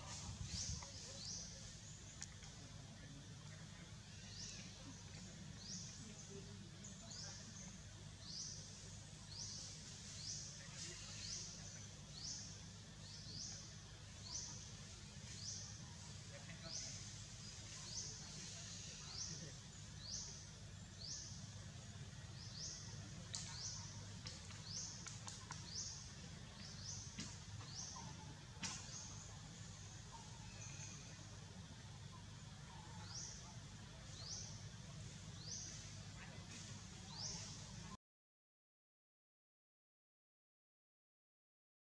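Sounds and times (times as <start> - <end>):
low steady rumble: 0.0 - 38.0.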